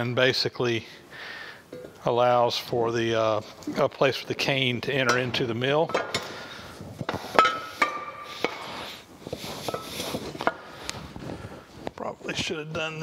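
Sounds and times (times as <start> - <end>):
cast iron parts clinking: 4.9 - 6.4, 7.1 - 8.7.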